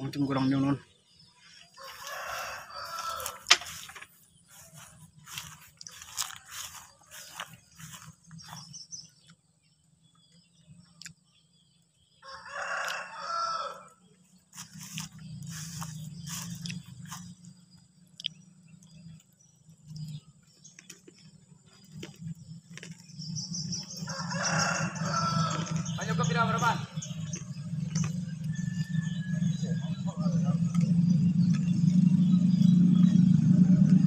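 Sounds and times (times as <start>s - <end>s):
rooster crowing: 1.7s - 3.9s, 12.2s - 14.0s, 23.7s - 30.6s
low steady rumble: 14.0s - 34.0s.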